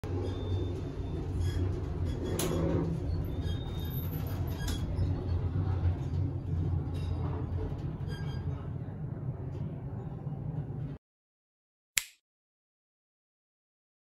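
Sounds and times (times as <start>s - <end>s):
low indoor rumble: 0.1s - 11.0s.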